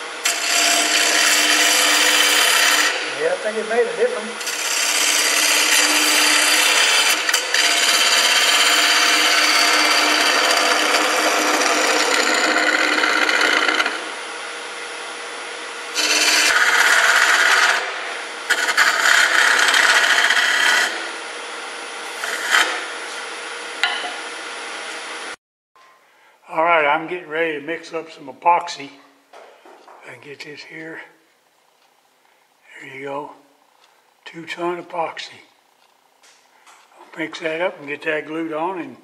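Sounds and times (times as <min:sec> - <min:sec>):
lathe humming: 0:00.0 - 0:24.6
cutter scraping wood on lathe: 0:00.2 - 0:03.2, 0:04.0 - 0:14.2, 0:15.9 - 0:21.2, 0:22.1 - 0:23.3.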